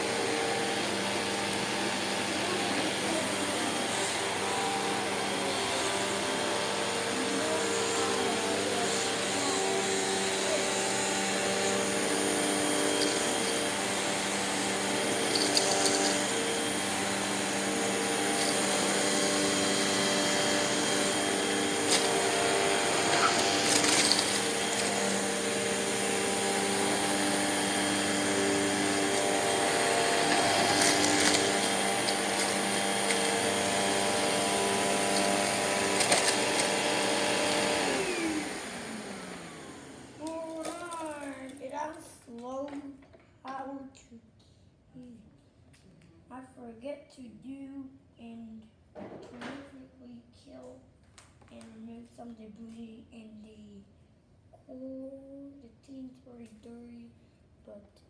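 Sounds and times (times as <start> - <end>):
vacuum motor winding down: 0.0 - 41.4
upright vacuum cleaner running: 0.0 - 41.5.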